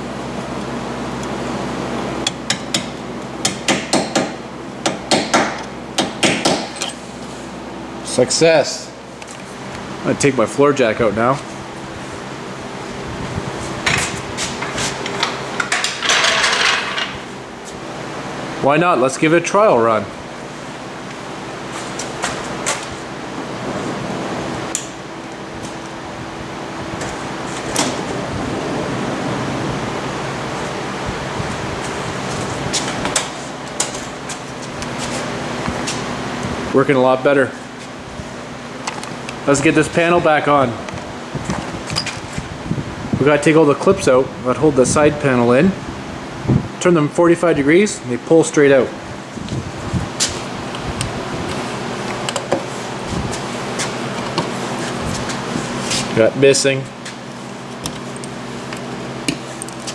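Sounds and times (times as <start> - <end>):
heater hum and hiss: 0.0 - 59.9
hammer tapping metal punch: 2.2 - 7.0.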